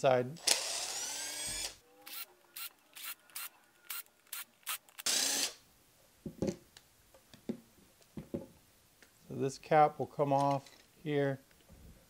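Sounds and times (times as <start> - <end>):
impact driver bursts: 3.0 - 5.6.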